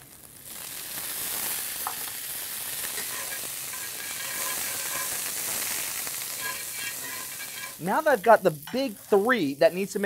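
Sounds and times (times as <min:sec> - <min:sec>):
food sizzling in a skillet: 0:00.0 - 0:10.0
metal spoon stirring: 0:02.9 - 0:07.8.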